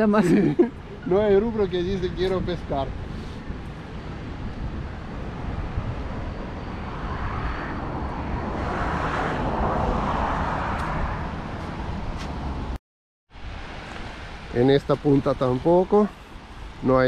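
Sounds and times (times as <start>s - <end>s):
road traffic: 0.0s - 17.0s
wind rumble on microphone: 0.7s - 12.8s
vehicle passing: 5.6s - 12.8s.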